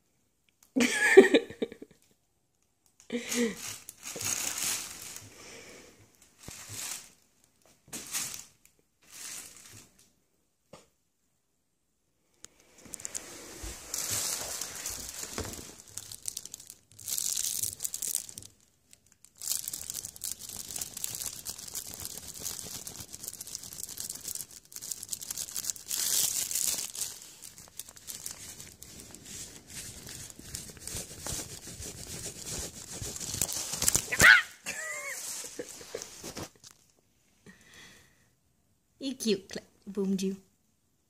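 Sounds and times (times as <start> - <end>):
fabric tunnel rustling: 3.5 - 5.3, 12.8 - 18.4, 19.4 - 34.2.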